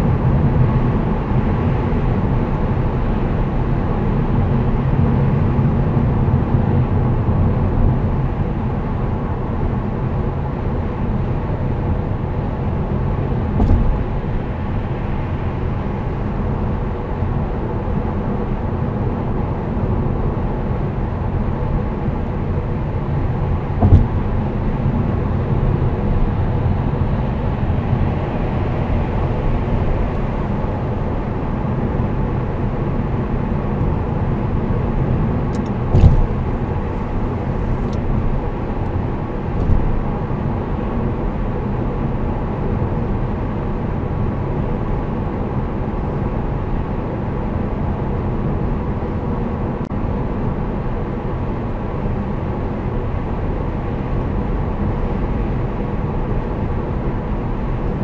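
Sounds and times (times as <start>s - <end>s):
car road and engine noise: 0.0s - 58.0s
short thumps: 13.6s - 14.1s, 23.8s - 24.3s, 35.9s - 36.4s.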